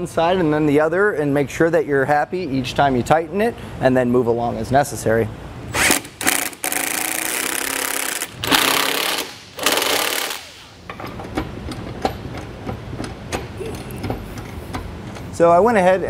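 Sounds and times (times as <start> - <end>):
impact driver rattling bursts: 5.8 - 10.6.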